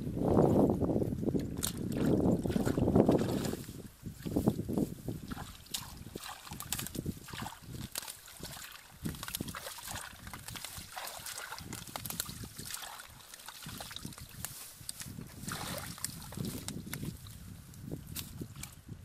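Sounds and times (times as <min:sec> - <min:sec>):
grass rustling against microphone: 0:00.0 - 0:19.0
hands splashing in muddy water: 0:01.4 - 0:17.4.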